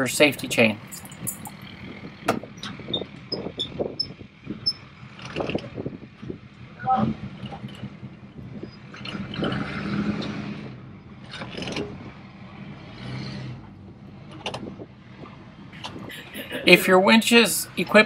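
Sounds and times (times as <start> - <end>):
metal clanking and scraping of winch: 11.2 - 12.0.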